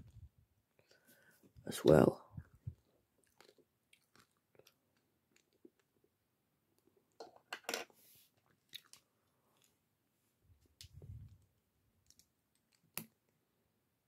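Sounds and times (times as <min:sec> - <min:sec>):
candy being chewed crunching: 0:03.1 - 0:06.1, 0:08.4 - 0:09.7.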